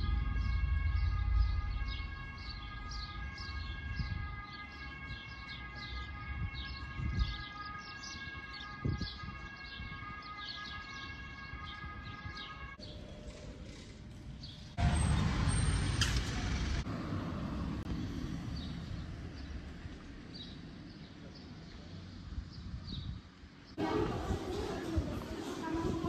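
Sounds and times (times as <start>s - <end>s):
loud rushing noise: 0.0s - 4.3s
outdoor background noise: 0.0s - 26.0s
small birds chirping: 1.3s - 14.8s, 17.8s - 25.0s.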